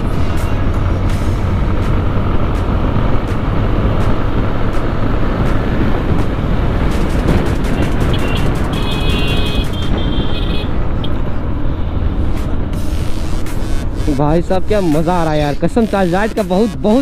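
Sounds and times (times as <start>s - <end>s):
motorcycle engine running: 0.0s - 10.6s
wind on microphone: 0.0s - 12.8s.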